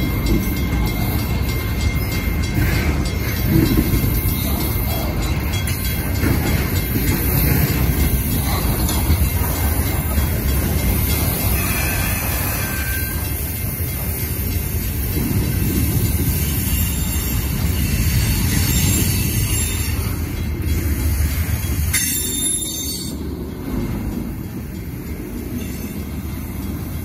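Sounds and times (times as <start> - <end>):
train wheels rumbling on rails: 0.0 - 27.0
high wheel squeal: 11.1 - 13.9, 21.9 - 23.2.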